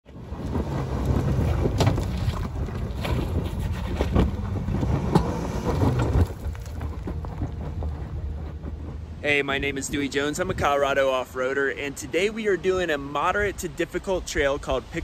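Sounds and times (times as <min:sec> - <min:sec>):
rocks crunching under tyres: 0:00.1 - 0:10.4
car engine running: 0:00.3 - 0:09.7.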